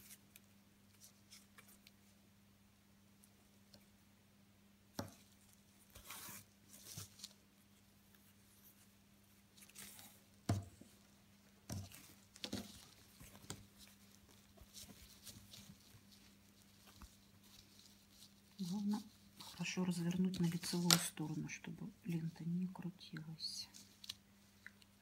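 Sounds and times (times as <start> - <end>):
ribbon rustling through cloth: 0.0 - 2.2, 5.0 - 25.0
faint low hum: 0.0 - 25.0.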